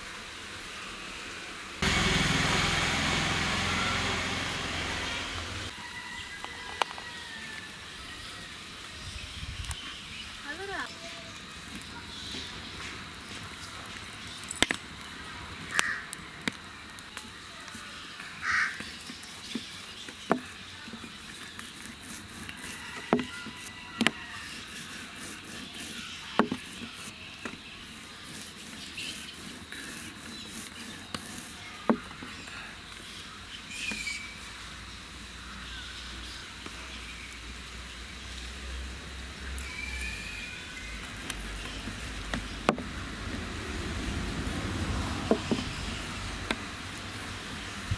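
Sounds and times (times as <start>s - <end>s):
wood fire crackling and popping: 11.4s - 20.2s
crow cawing: 15.8s - 16.1s, 18.4s - 18.8s.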